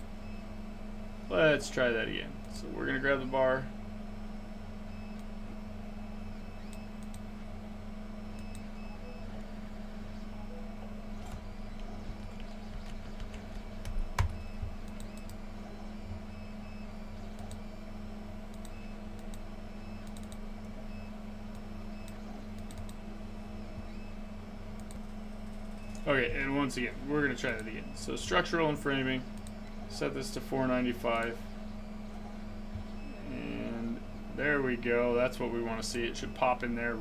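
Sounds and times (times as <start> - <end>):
steady low hum: 0.0 - 37.0
computer mouse and keyboard clicks: 11.2 - 15.4, 20.0 - 20.4, 21.5 - 23.0.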